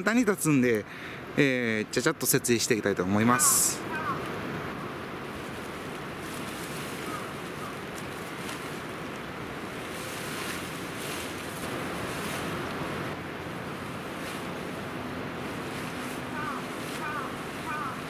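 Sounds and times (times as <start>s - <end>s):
steady rushing noise: 0.0s - 18.0s
nylon fabric rustling: 5.3s - 18.0s.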